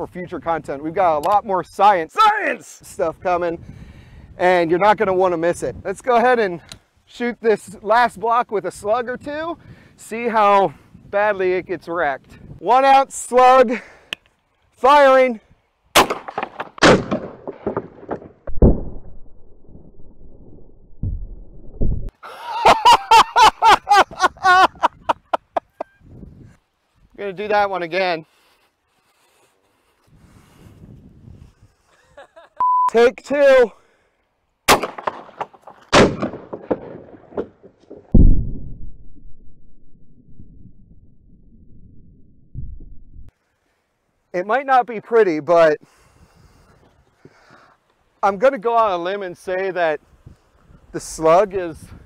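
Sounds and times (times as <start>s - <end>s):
gunshot crack with echo: 16.0s - 17.8s, 34.7s - 37.4s
shotgun blasts: 16.0s - 19.3s, 34.7s - 38.5s
dull thumps of debris: 16.2s - 18.6s.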